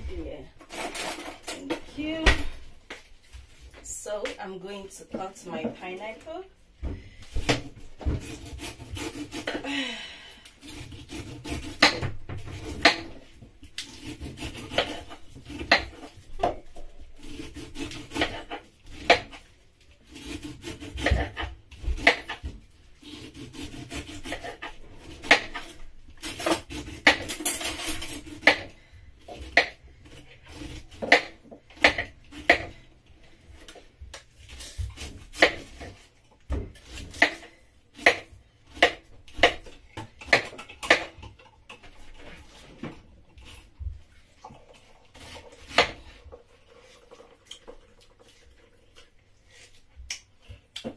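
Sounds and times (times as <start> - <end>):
knife rasping through pineapple skin: 7.4 - 9.6, 10.6 - 13.2, 13.8 - 16.2, 17.2 - 19.4, 20.0 - 32.8.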